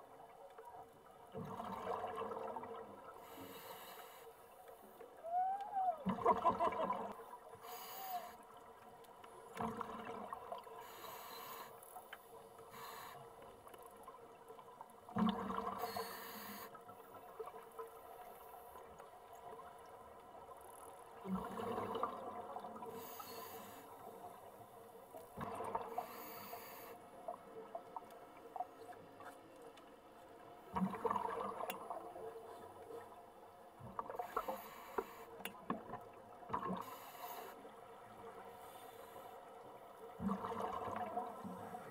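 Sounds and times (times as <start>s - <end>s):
steady underwater wash: 0.0s - 41.9s
exhaled bubbles underwater: 1.3s - 3.2s, 6.0s - 7.4s, 9.6s - 10.8s, 15.1s - 16.0s, 21.1s - 23.1s, 25.3s - 26.2s, 30.7s - 33.1s, 40.1s - 41.9s.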